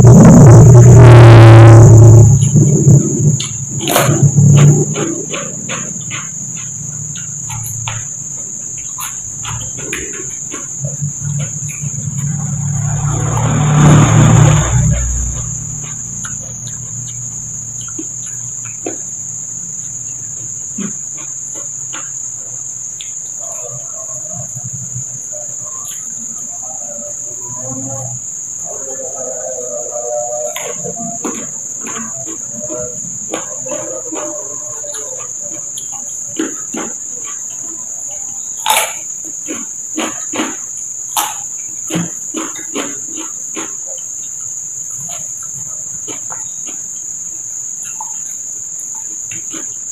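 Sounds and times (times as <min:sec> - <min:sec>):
rushing noise: 0:00.0 - 0:08.0, 0:10.8 - 0:17.8
crickets chirring: 0:00.0 - 0:49.9
chewing and crunching: 0:02.2 - 0:24.2, 0:28.7 - 0:49.9.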